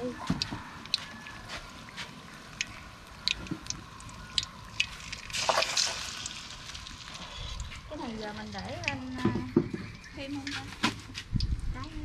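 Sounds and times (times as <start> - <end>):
food sizzling in hot oil: 2.1 - 9.2.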